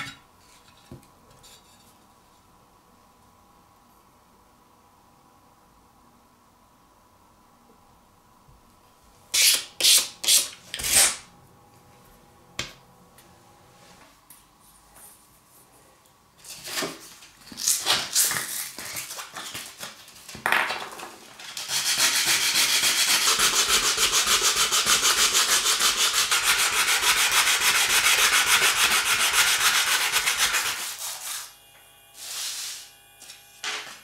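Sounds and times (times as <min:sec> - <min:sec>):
wooden handle sanding on sandpaper: 0:21.6 - 0:31.6, 0:32.2 - 0:32.9.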